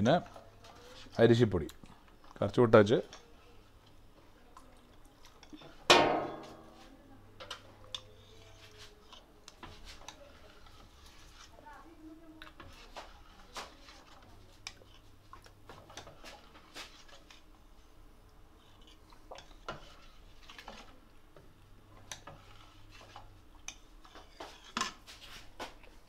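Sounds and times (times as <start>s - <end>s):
metal ladle scraping pot: 18.8s - 21.0s.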